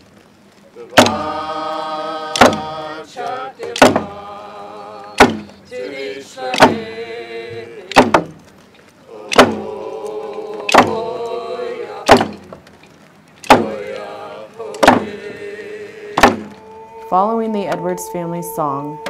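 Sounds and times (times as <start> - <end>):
group of voices singing: 0.8 - 8.3, 9.0 - 12.6, 13.4 - 19.0.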